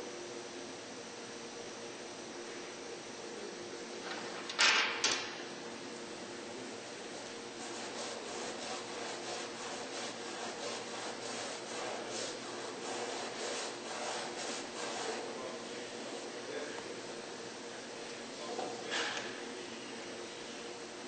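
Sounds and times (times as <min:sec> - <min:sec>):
hand tool scraping wood: 0:07.6 - 0:15.2.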